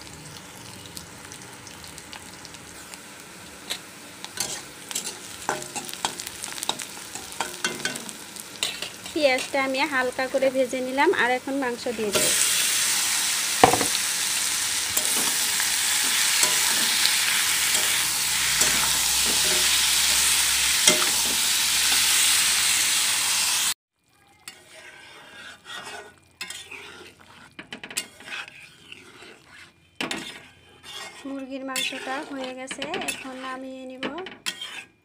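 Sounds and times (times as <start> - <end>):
chicken sizzling in hot oil: 0.0 - 33.7
spatula scraping and clinking: 4.4 - 9.6, 16.0 - 20.2, 24.5 - 35.0
metal spatula knocking on pan: 13.6 - 14.0.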